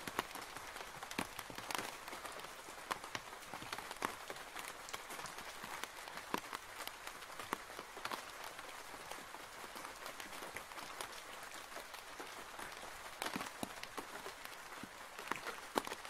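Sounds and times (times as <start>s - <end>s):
rain falling on a roof: 0.0s - 16.0s.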